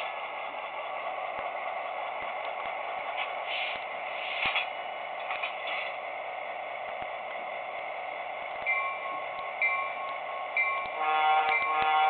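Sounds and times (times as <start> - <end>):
locomotive bell ringing: 8.6 - 12.0.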